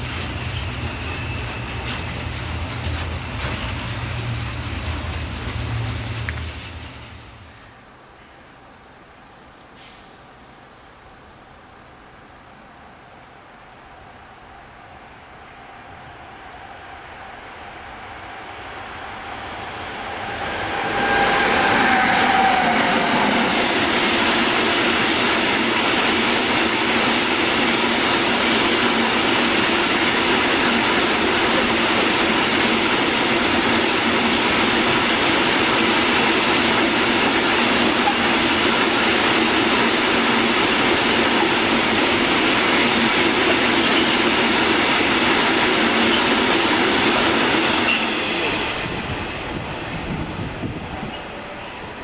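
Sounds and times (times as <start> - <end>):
train wheels rattling on rail: 0.0 - 7.7, 17.9 - 52.0.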